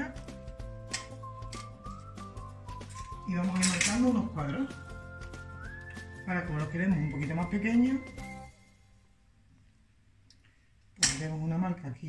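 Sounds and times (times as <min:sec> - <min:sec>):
soft background music: 0:00.0 - 0:09.1.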